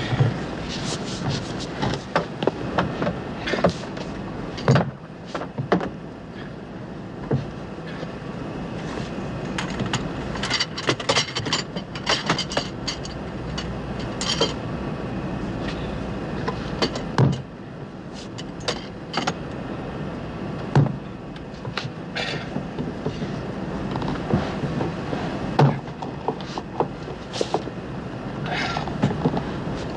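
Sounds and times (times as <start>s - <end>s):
knocks and clatters in lavatory: 0.0s - 6.5s, 7.2s - 8.1s, 16.4s - 17.5s, 20.6s - 27.7s, 28.5s - 29.9s
airliner cabin rumble: 0.0s - 29.9s.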